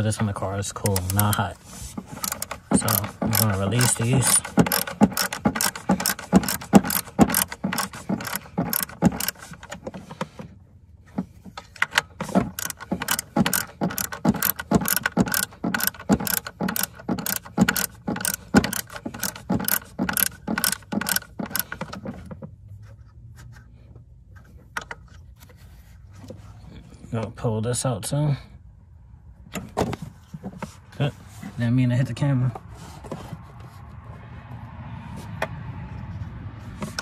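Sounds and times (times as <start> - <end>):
hand ratchet clicking: 0.8 - 10.1, 11.8 - 22.1.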